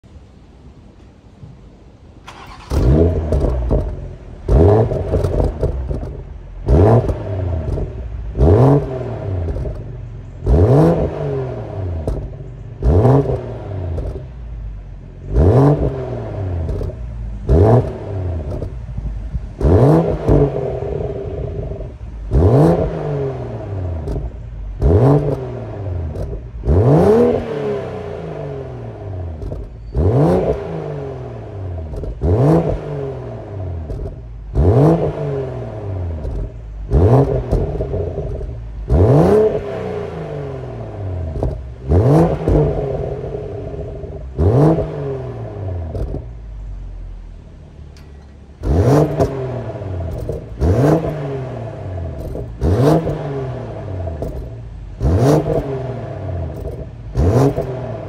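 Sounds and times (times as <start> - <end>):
exhaust crackles: 2.2 - 58.0
car engine revving: 2.3 - 58.0.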